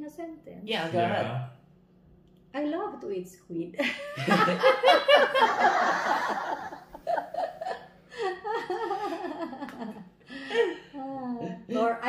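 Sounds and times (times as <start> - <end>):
people speaking: 0.0 - 1.5, 2.6 - 6.4, 10.6 - 12.0
people laughing: 3.8 - 10.8.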